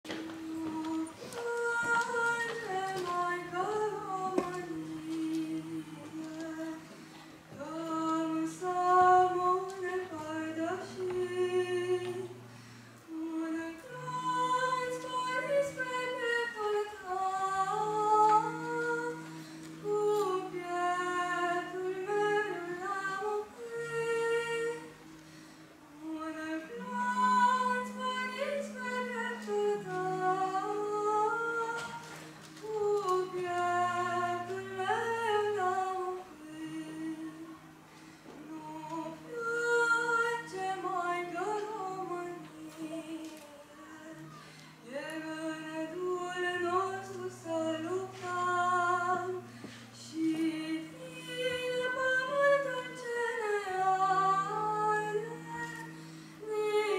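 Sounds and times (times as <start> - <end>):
boy singing into a microphone: 0.1 - 12.4, 26.0 - 37.7, 38.4 - 56.9
long held low accompaniment notes: 7.5 - 56.9.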